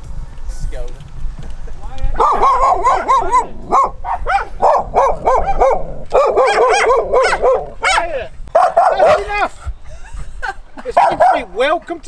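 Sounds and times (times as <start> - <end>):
dogs barking: 2.1 - 9.5, 10.9 - 11.8.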